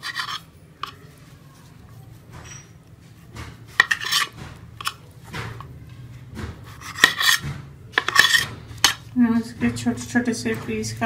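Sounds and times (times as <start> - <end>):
knife sawing through bread crusts: 0.0 - 0.5, 3.2 - 5.0, 6.4 - 9.1.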